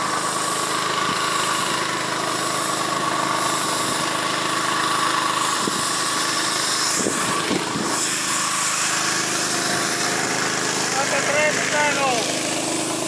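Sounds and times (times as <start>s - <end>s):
small pump engine running: 0.0s - 13.0s
spray hissing: 0.0s - 13.0s.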